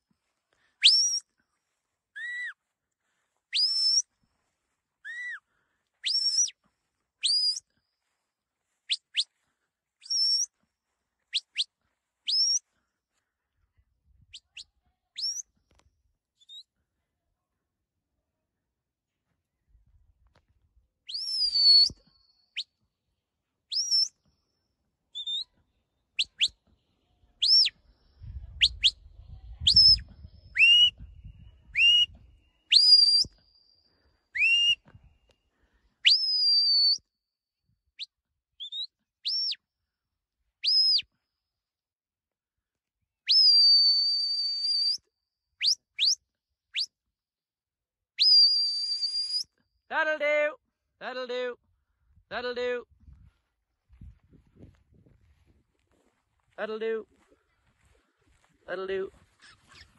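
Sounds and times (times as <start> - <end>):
shepherd's whistle: 0.8 - 1.3, 2.2 - 2.6, 3.5 - 4.1, 5.0 - 5.4, 6.0 - 6.6, 7.2 - 7.7, 8.9 - 9.4, 10.0 - 10.5, 11.3 - 11.7, 12.3 - 12.7, 14.3 - 15.6, 21.1 - 22.8, 23.7 - 24.2, 25.2 - 25.6, 26.2 - 26.6, 27.4 - 27.8, 28.5 - 34.9, 36.0 - 37.1, 38.0 - 39.6, 40.6 - 41.1, 43.3 - 47.0, 48.2 - 49.6.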